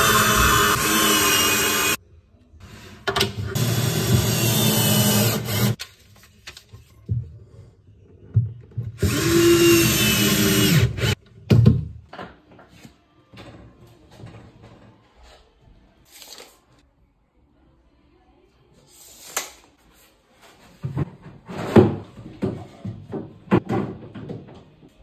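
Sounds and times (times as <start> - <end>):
cordless drill running: 0.0 - 2.0, 9.0 - 11.2.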